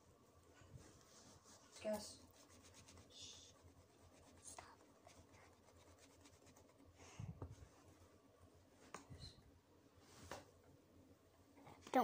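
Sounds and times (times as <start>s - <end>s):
hands rubbing dough on table: 0.8s - 6.9s.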